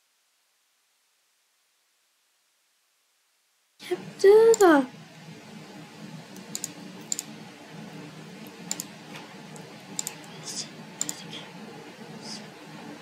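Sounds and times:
low background noise: 0.0s - 13.0s
mouse and keyboard clicks: 6.4s - 7.3s, 8.7s - 8.9s, 9.5s - 10.4s, 11.0s - 11.3s.

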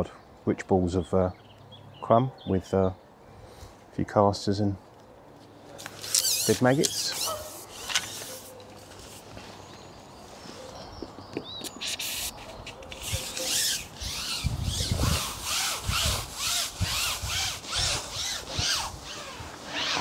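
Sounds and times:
fishing pole rubbing strokes: 5.8s - 9.3s, 11.8s - 20.0s.

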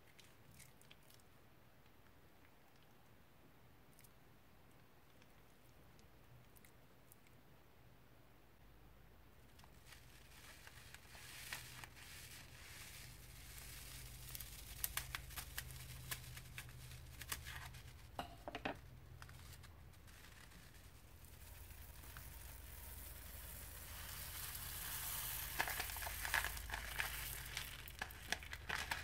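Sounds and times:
plastic bag crinkling: 9.7s - 18.2s, 19.2s - 29.0s.

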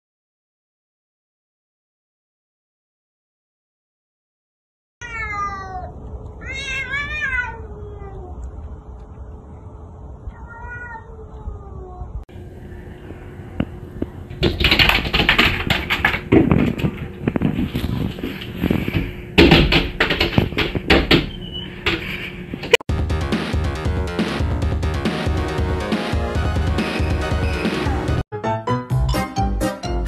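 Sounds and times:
cats yowling: 5.0s - 8.5s, 10.3s - 12.2s.

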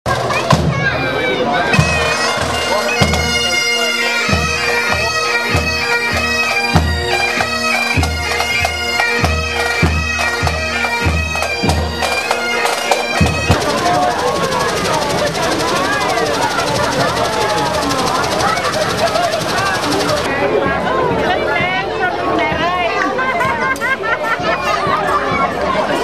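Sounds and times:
bagpipes playing a march: 0.2s - 20.3s
snare drums: 11.6s - 20.3s.

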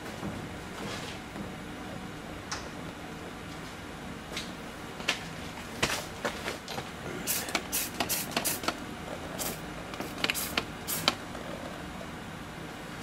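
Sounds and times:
spray bottle hissing spritzes: 7.3s - 8.7s, 9.4s - 11.2s.

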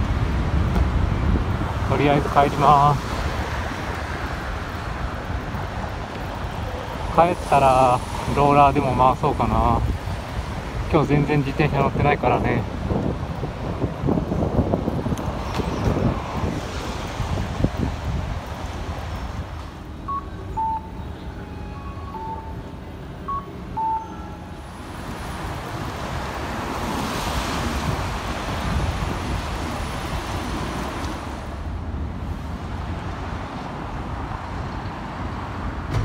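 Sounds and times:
wind rumble on microphone: 0.0s - 20.2s, 24.8s - 36.0s
road traffic passing: 0.0s - 36.0s
two-pitch electronic beeps: 20.1s - 22.6s, 23.2s - 24.6s.

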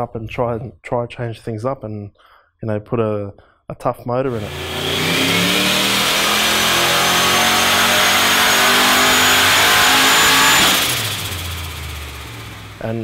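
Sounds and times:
engine running at raised revs: 4.3s - 13.0s.

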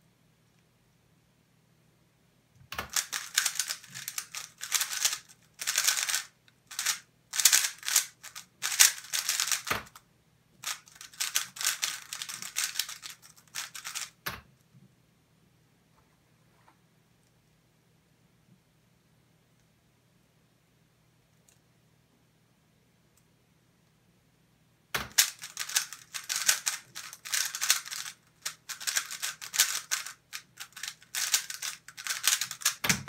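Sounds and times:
plastic puzzle cube clicking: 2.8s - 10.0s, 10.6s - 14.2s, 25.0s - 33.0s.

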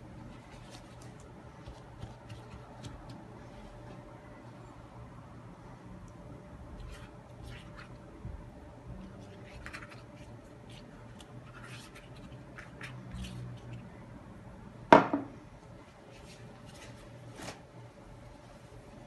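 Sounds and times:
pastry brush rasping on pastry: 0.2s - 3.7s.

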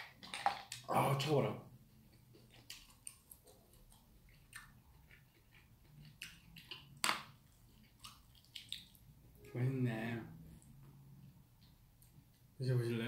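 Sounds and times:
person chewing food: 1.7s - 9.4s.

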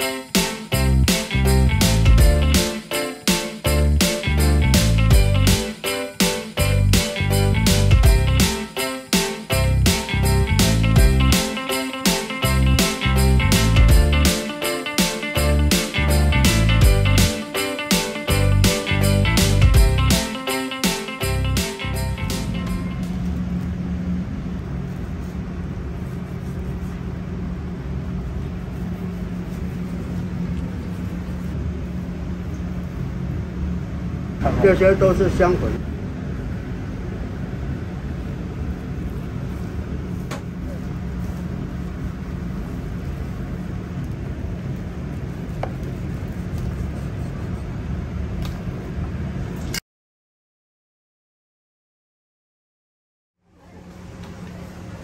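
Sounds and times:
kitchen rumble and hum: 21.8s - 49.8s, 53.4s - 55.0s.

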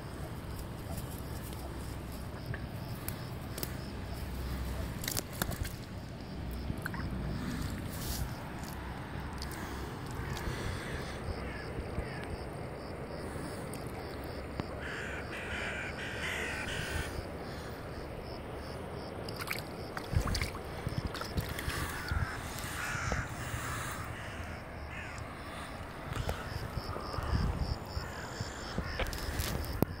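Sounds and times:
outdoor background noise: 0.0s - 30.0s
crows cawing: 9.4s - 13.6s, 14.7s - 18.0s, 21.4s - 29.7s.

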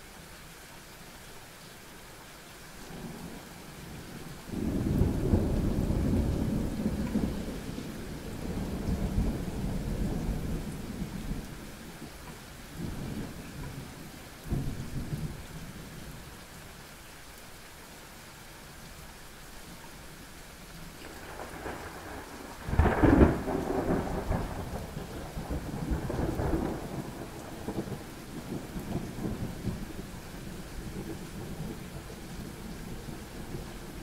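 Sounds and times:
steady rain: 0.0s - 34.0s
thunder rumbling and cracking: 4.5s - 11.5s, 21.0s - 33.6s.

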